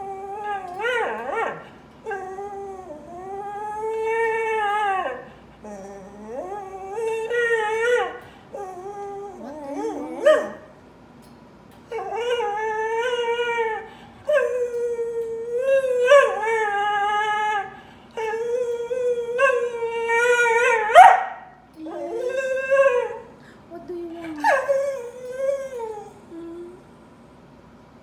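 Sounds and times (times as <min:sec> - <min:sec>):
dog howling whines: 0:00.0 - 0:10.7, 0:11.9 - 0:23.4.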